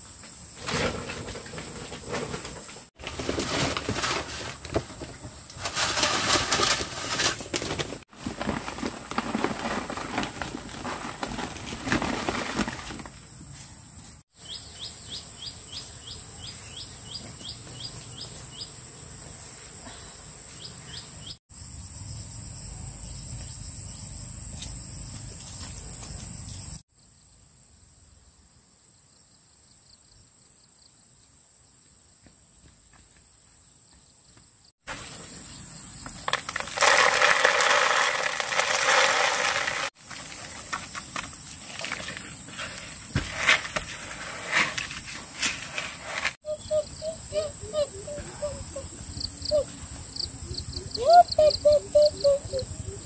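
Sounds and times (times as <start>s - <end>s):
rustling and clattering handling noise: 0.6s - 13.6s, 36.1s - 46.4s
bird chirping: 14.4s - 18.8s, 46.4s - 53.0s.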